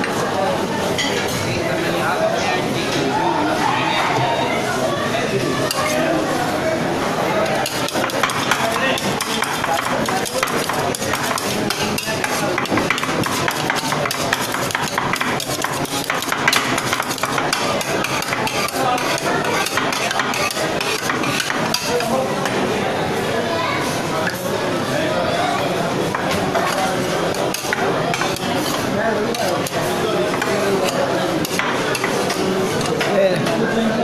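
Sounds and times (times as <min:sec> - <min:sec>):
metal spatulas clattering on steel: 0:07.6 - 0:22.1.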